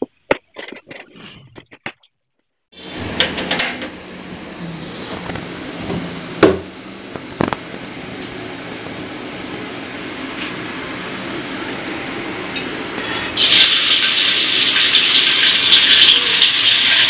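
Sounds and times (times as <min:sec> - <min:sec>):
oil hissing in a wok: 0:13.0 - 0:17.0.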